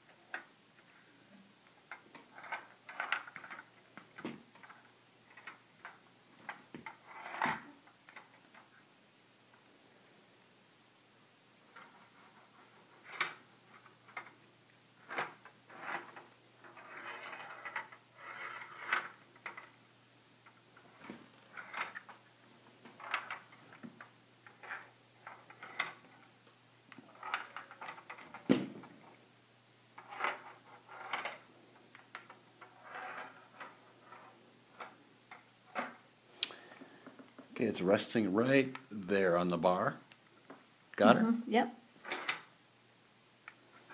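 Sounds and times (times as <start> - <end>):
ball rolling and clicking in plastic: 1.7 - 8.7, 11.7 - 19.8, 20.4 - 22.3, 22.9 - 29.2, 30.0 - 36.0.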